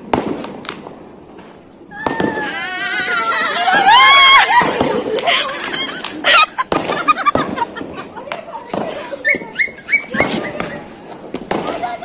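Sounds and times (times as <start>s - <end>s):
sharp cracks: 0.0s - 9.2s, 10.0s - 12.0s
excited voices: 1.9s - 12.0s
laughter: 3.1s - 11.0s.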